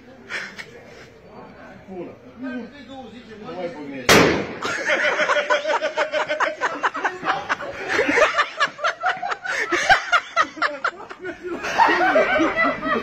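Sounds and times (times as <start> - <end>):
people laughing hard: 4.6 - 13.0.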